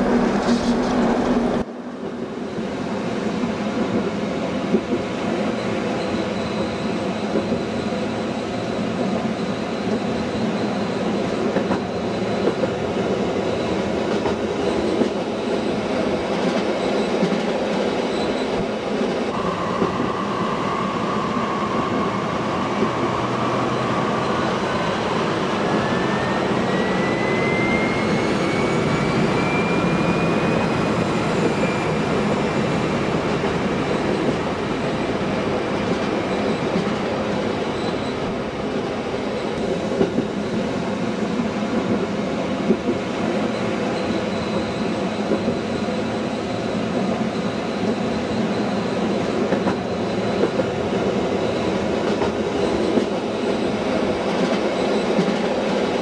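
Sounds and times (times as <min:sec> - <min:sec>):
train rumbling on rails: 0:00.0 - 0:56.0
wheels clickety-clack: 0:49.5 - 0:49.8, 0:50.4 - 0:50.8, 0:52.0 - 0:53.6.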